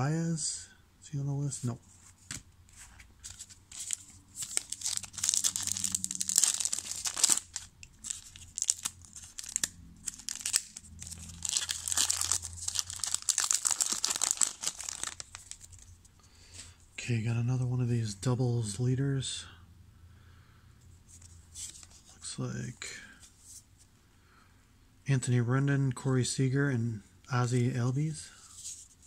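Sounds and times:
foil wrapper tearing and crinkling: 0:03.8 - 0:15.9.

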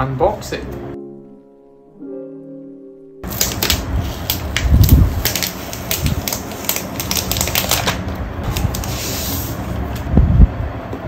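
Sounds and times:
plastic film crackling: 0:03.2 - 0:09.6
plastic sheet sliding hiss: 0:03.2 - 0:09.9.

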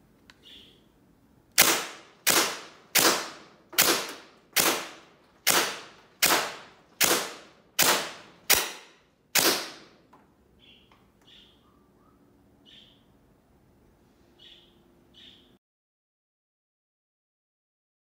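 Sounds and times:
toy blaster firing shots: 0:01.6 - 0:09.9.

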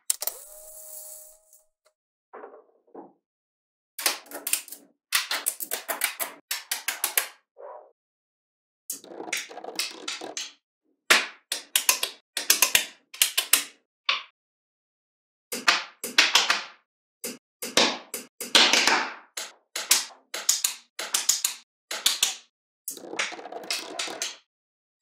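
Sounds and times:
magnetic balls clicking together: 0:00.0 - 0:01.5.

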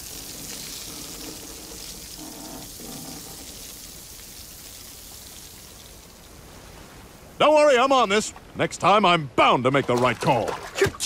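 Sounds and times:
steady hiss: 0:00.0 - 0:09.7.

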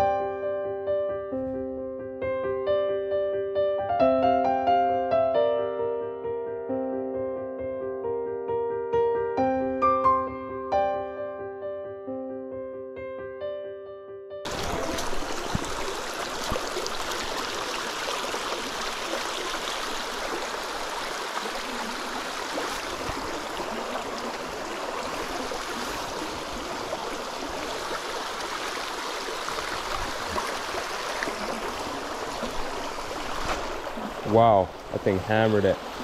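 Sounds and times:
stream babbling over stones: 0:14.5 - 0:36.0.

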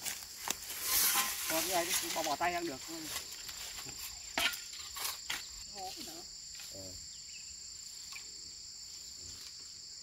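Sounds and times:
hoes and shovels scraping soil: 0:00.0 - 0:06.8
high-pitched insect chorus: 0:00.0 - 0:10.0.

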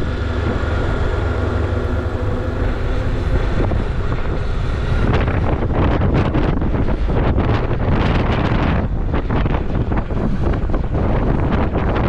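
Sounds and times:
steady low drone: 0:00.0 - 0:12.0
wind buffeting microphone: 0:00.0 - 0:12.0.

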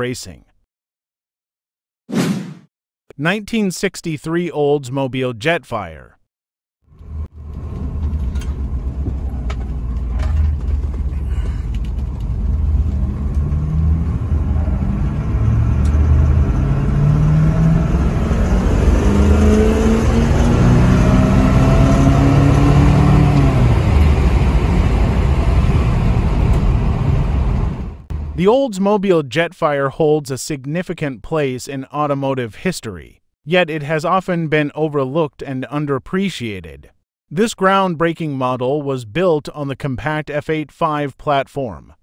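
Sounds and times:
car engine rumble from inside: 0:07.0 - 0:17.2.

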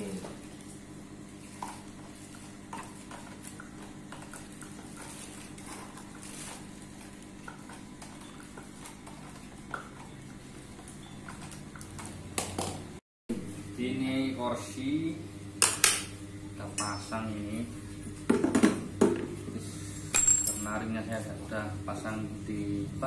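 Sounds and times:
steady low hum: 0:11.5 - 0:23.0.

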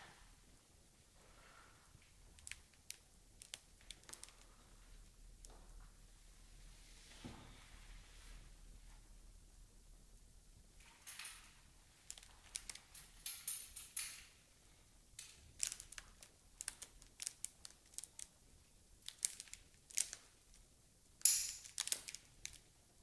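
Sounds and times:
crinkling rustles: 0:02.0 - 0:06.0, 0:10.8 - 0:14.2, 0:15.2 - 0:20.7, 0:21.6 - 0:22.9.

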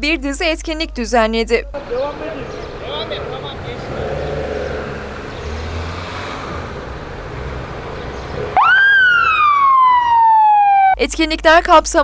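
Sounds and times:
motorcade engines rumbling: 0:01.7 - 0:11.0
siren wailing: 0:08.4 - 0:11.0.

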